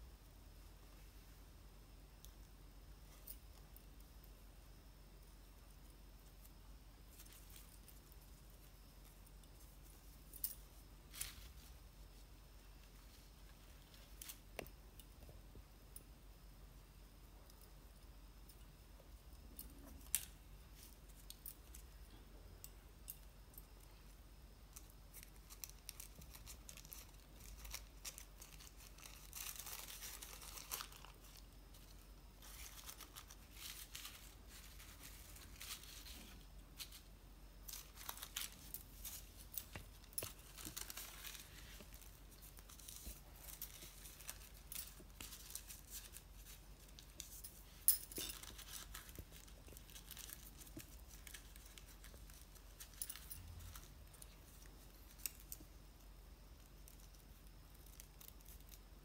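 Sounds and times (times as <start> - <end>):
paper rustling and crinkling: 25.2 - 55.6.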